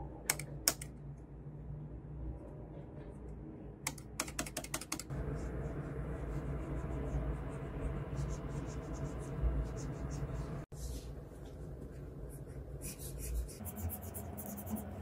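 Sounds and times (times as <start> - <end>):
keypad keys clicking: 3.9 - 5.1
stylus scratching on screen: 5.2 - 11.1, 12.3 - 15.0.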